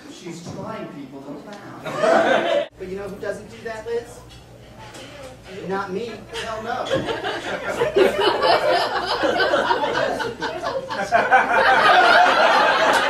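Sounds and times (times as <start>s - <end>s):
audience laughing: 1.8s - 2.7s, 6.4s - 13.0s.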